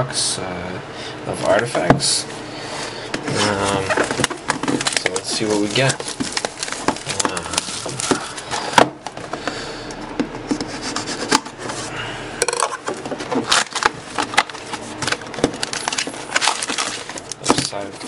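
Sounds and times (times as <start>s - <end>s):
rustling and rubbing: 3.3s - 8.6s
knife scraping cardboard box: 10.6s - 11.8s.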